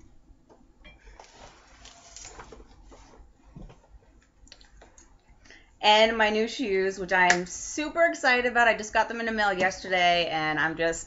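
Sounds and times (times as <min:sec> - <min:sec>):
clothing rustling: 0:01.0 - 0:05.0.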